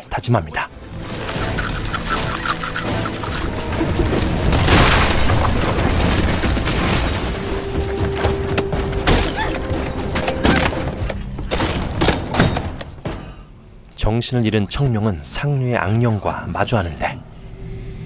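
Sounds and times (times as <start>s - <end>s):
dramatic score music: 0.2s - 15.2s
booms and crashes: 3.5s - 9.3s.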